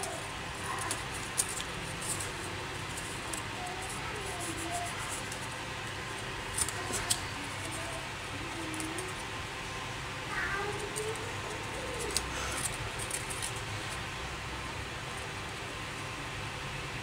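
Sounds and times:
wooden sticks clicking: 0.0s - 2.3s.

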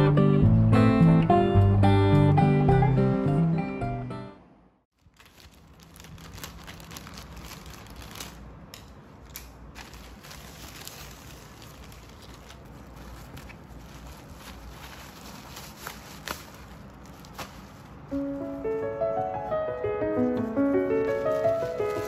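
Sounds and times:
plastic packaging crinkling: 4.9s - 22.0s.

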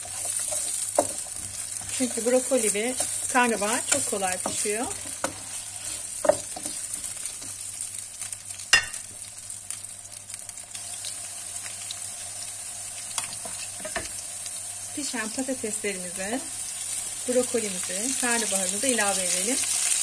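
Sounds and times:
wooden spatula stirring: 0.0s - 7.6s
vegetables sizzling in oil: 0.0s - 20.0s.

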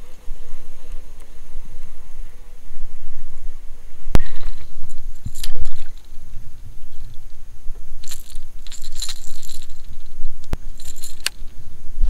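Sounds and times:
wind on microphone: 0.0s - 12.0s
metallic jingling of tackle: 5.1s - 6.2s, 8.0s - 11.5s.

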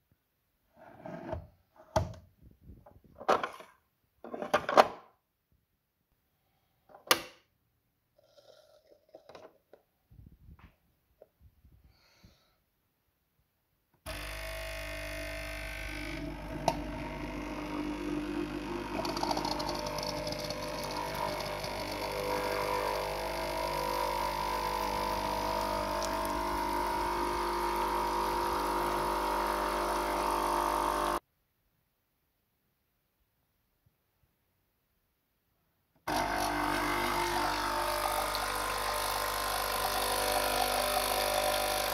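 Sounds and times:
coffee machine pump buzzing: 14.1s - 31.2s, 36.1s - 41.9s.

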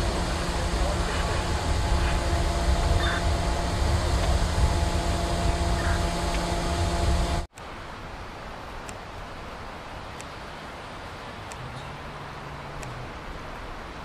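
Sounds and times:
truck engine rumbling: 0.0s - 7.5s
steady hiss: 0.0s - 14.0s.

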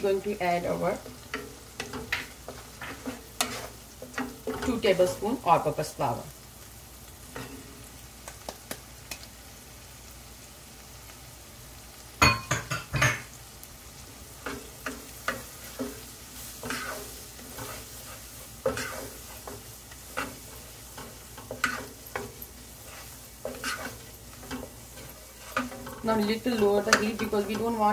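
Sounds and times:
faint butter sizzle: 0.0s - 27.9s
wooden spatula scraping frying pan: 0.3s - 5.4s, 14.4s - 27.9s.

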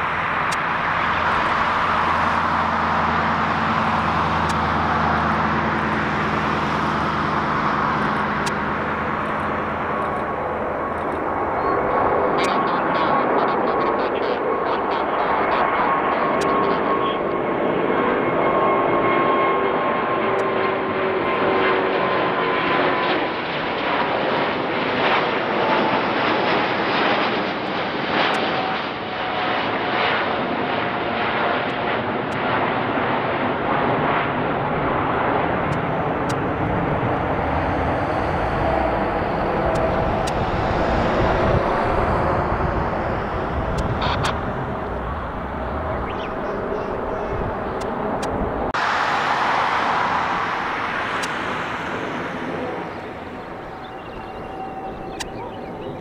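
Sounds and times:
jet airliner roar: 0.0s - 56.0s.

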